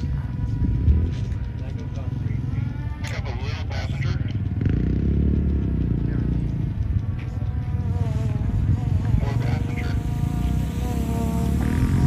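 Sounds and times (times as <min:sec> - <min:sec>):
wavering engine whine: 0:00.0 - 0:12.0.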